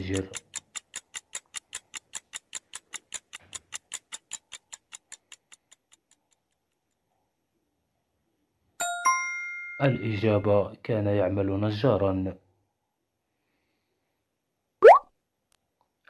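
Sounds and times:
clock ticking: 0:00.0 - 0:07.0
chime: 0:08.8 - 0:10.6.

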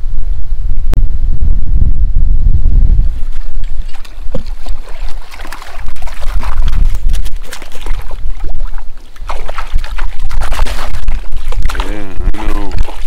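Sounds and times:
wind rumbling on microphone: 0:00.0 - 0:13.0
small waves lapping a boat: 0:03.2 - 0:13.0
water splashing and dripping: 0:03.4 - 0:13.0.

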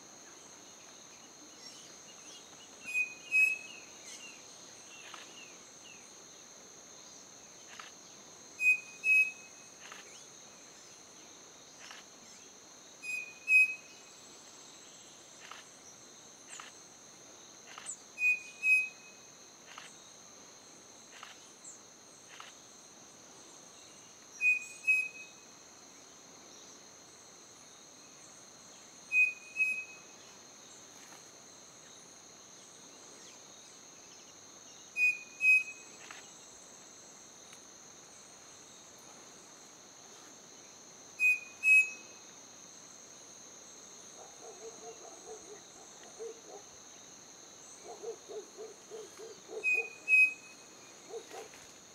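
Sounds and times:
high insect drone: 0:00.0 - 0:51.9.

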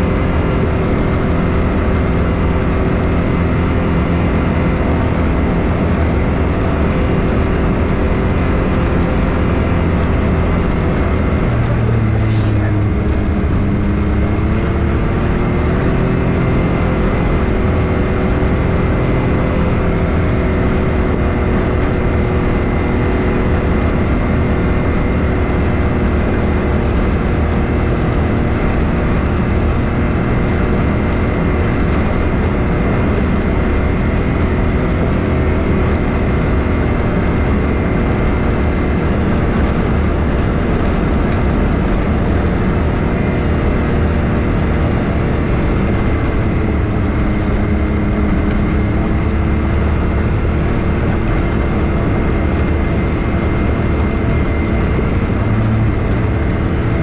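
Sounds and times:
engine running at steady cruise: 0:00.0 - 0:57.0
faint steady whine: 0:00.0 - 0:57.0.

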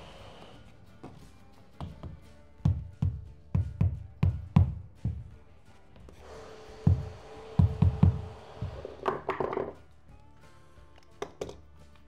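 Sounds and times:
background music: 0:00.0 - 0:12.0
dull knocks on wood floor: 0:06.8 - 0:09.8.

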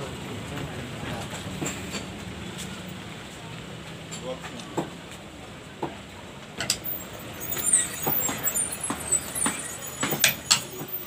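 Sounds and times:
sharp knocks and clicks: 0:08.0 - 0:11.0.

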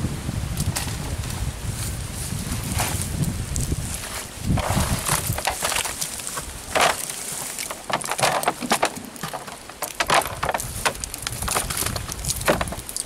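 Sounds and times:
fishing net being shaken: 0:04.1 - 0:13.0
fish flapping against plastic drum: 0:06.7 - 0:13.0.

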